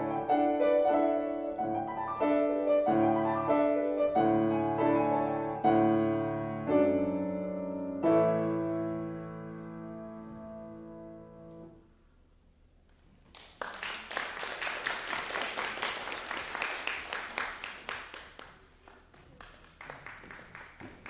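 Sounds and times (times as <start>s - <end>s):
grand piano chords: 0.0s - 12.4s
audience applause: 13.3s - 21.0s.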